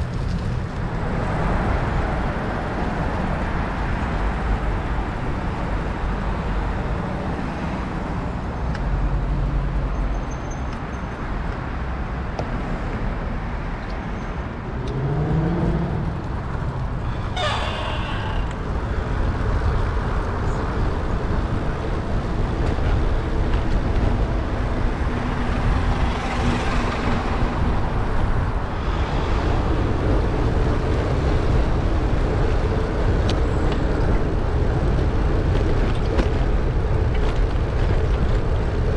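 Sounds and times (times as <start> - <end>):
rush of passing traffic: 0.0 - 38.9
vehicle engines rumbling: 0.0 - 38.9
engine note rising: 14.7 - 18.7.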